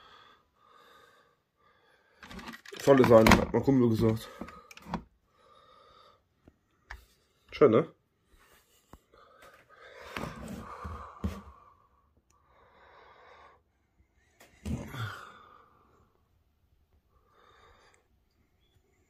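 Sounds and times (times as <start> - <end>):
person breathing noisily: 9.0 - 13.7.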